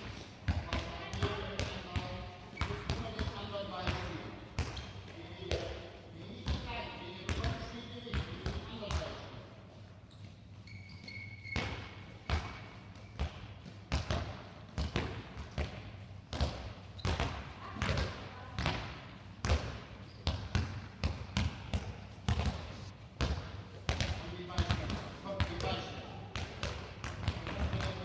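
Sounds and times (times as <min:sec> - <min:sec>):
short high squeak: 0:10.6 - 0:11.7.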